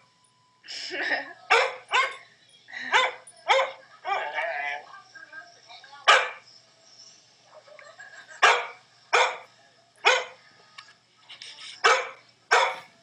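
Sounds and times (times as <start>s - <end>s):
dog barking: 1.5s - 2.2s, 2.9s - 4.5s, 6.1s - 6.4s, 8.4s - 10.4s, 11.8s - 13.0s.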